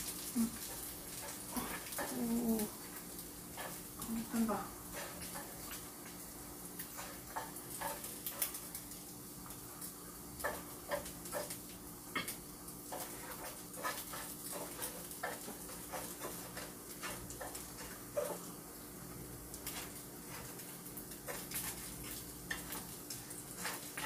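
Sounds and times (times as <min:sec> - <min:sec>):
faint frying sizzle: 0:00.0 - 0:24.0
chopsticks clicking on a pan: 0:10.4 - 0:11.6, 0:22.4 - 0:24.0.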